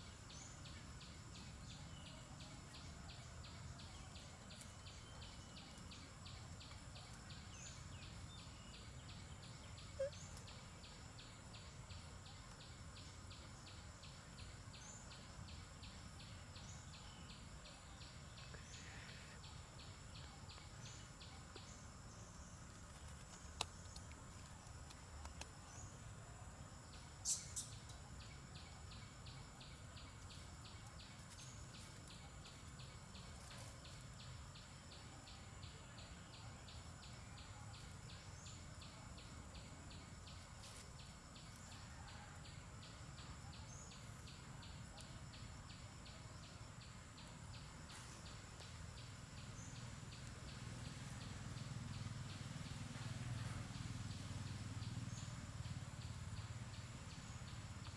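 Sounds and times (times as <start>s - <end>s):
insects chirring: 0.0s - 57.9s
bird chirps: 0.3s - 22.7s, 27.2s - 40.8s.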